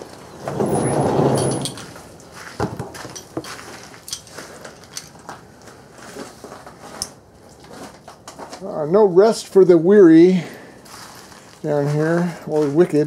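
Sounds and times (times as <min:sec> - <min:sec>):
wooden door creaking open: 0:00.4 - 0:02.0.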